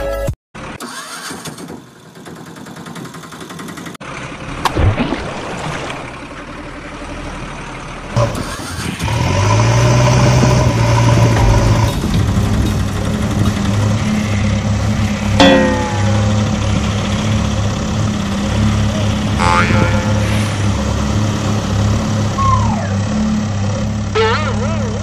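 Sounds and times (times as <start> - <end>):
engine idling: 1.8 - 4.7, 6.0 - 25.0
water splash: 4.6 - 6.4.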